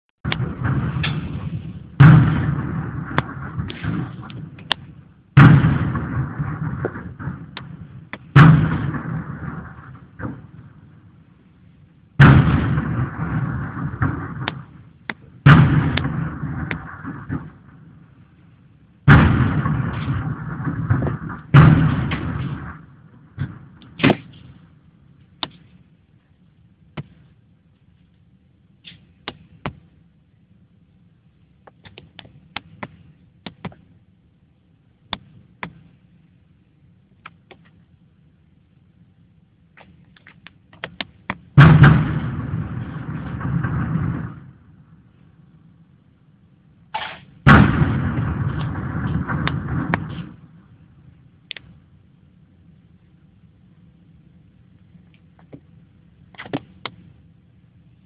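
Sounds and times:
sharp cracks: 0.2 - 28.2, 28.8 - 30.2, 31.6 - 34.2, 39.7 - 45.8, 46.9 - 52.0, 54.8 - 57.4
saluting gun booming shots: 0.3 - 11.0, 12.2 - 18.1, 19.1 - 24.8, 41.0 - 44.9, 47.0 - 50.7.

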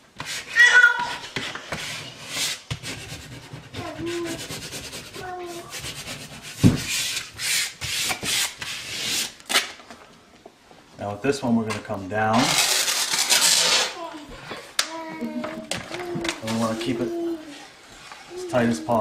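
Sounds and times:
hands rubbing paper rustling: 1.1 - 9.4, 12.3 - 14.0, 15.2 - 19.0
thump: 6.6 - 6.9.

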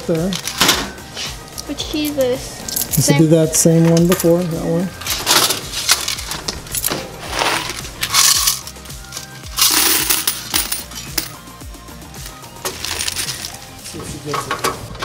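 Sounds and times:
coins clattering into bucket: 5.0 - 11.4, 12.3 - 13.6.

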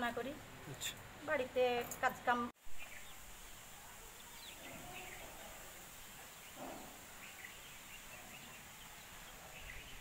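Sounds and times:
faint steady hiss: 0.0 - 10.0
small birds chirping: 2.0 - 10.0
low animal call: 4.5 - 5.8, 6.5 - 7.1.

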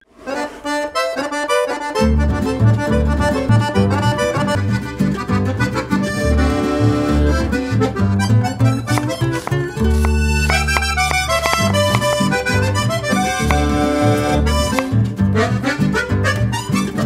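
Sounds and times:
accordion folk music: 0.1 - 17.0.

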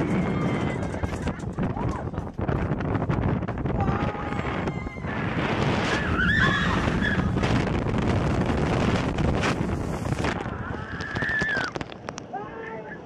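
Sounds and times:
riders screaming: 0.0 - 2.0, 3.8 - 7.4, 10.3 - 13.0
wind on microphone: 0.0 - 12.2.

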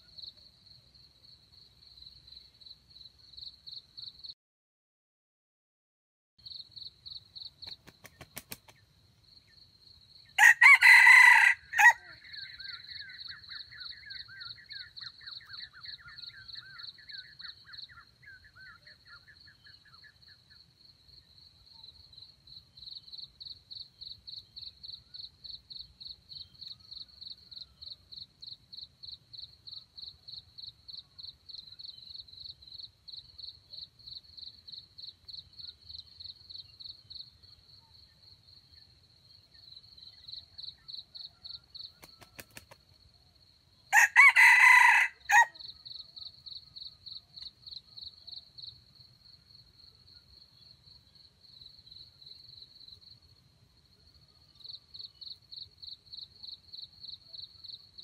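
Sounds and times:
wings fluttering: 7.6 - 8.9, 41.9 - 42.9
rooster crowing: 10.4 - 12.4, 43.9 - 45.6.

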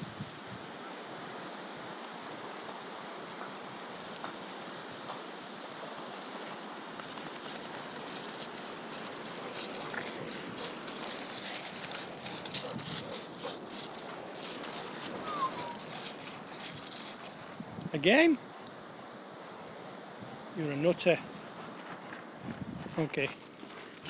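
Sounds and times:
water lapping at pebble shore: 5.9 - 17.7
dog splashing through wet pebbles: 6.8 - 17.6
wind on microphone: 9.2 - 18.0, 22.4 - 23.0.

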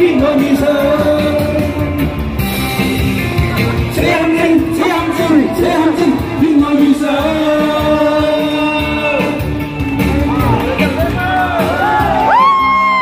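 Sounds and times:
pop ballad backing track: 0.0 - 13.0
person singing wordless notes: 3.8 - 9.5.

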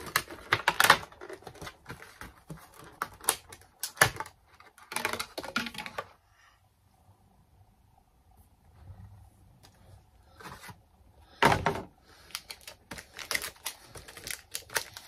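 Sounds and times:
plastic packaging crinkling: 12.2 - 15.0.

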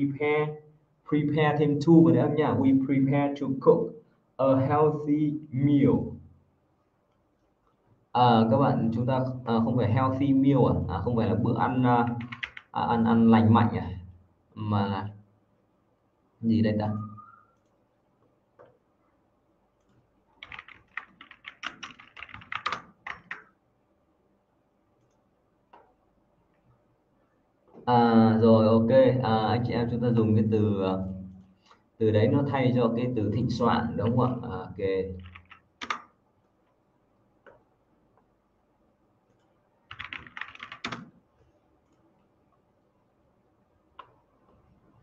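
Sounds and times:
typing on keyboard: 12.0 - 12.8, 19.8 - 23.6, 35.1 - 36.1, 39.3 - 41.1.

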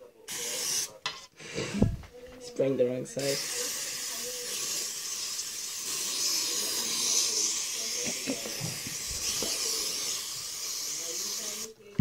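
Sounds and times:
aerosol spray hissing: 0.3 - 0.9, 3.2 - 11.7.

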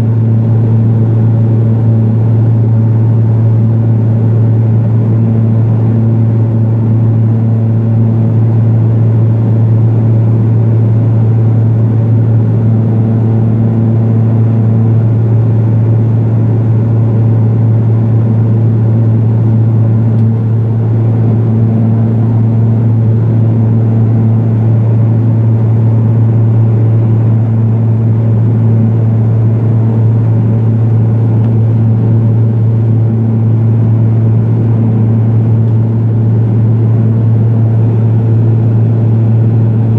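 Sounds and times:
turboprop engine cabin hum: 0.0 - 39.9.

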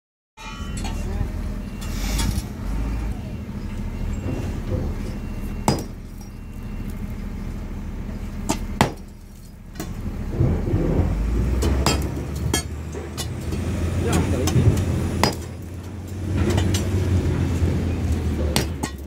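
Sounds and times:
low machine hum: 0.4 - 19.0
sledgehammer striking concrete: 5.6 - 6.2, 8.4 - 9.2, 9.8 - 17.1, 18.3 - 19.0.

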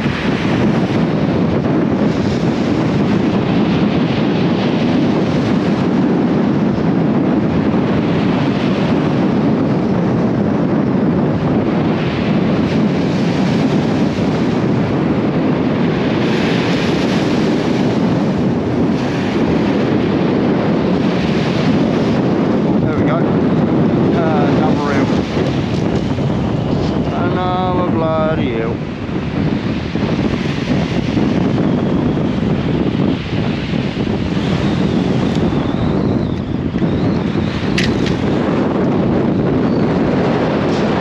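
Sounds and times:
wind buffeting microphone: 0.0 - 41.0
surf on shingle: 15.6 - 31.5.

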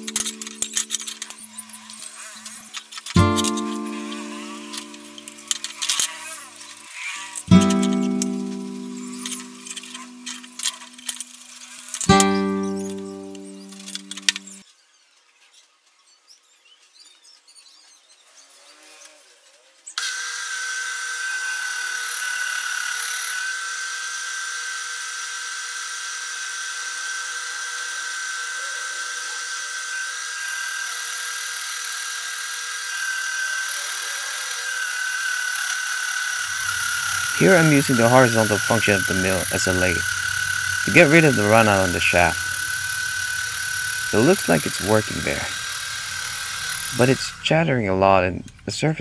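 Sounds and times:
music: 0.0 - 1.5, 3.2 - 6.1, 7.5 - 14.6, 40.8 - 42.4
milling machine cutting metal: 0.0 - 14.6, 29.5 - 47.6.

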